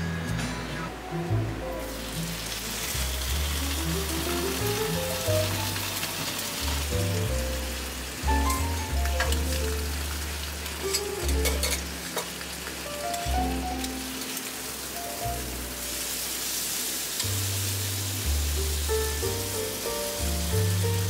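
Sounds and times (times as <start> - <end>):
bacon and egg sizzling: 1.8 - 21.0
metal utensil scraping hot plate: 10.8 - 12.3.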